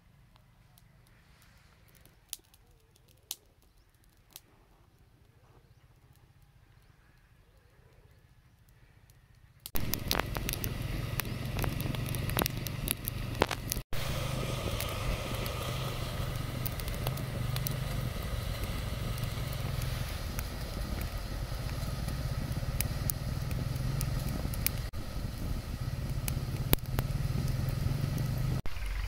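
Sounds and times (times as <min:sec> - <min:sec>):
twig fire crackling and popping: 0:00.3 - 0:07.4, 0:08.0 - 0:29.0
steady low rumble: 0:09.8 - 0:29.0.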